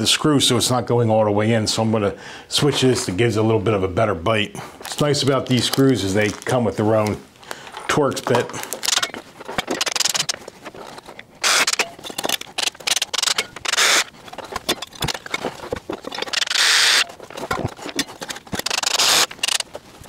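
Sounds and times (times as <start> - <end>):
bracket and screws clattering: 4.9 - 20.0
cordless drill driving screws: 11.4 - 11.8, 12.6 - 14.1, 16.3 - 17.1, 18.5 - 19.7.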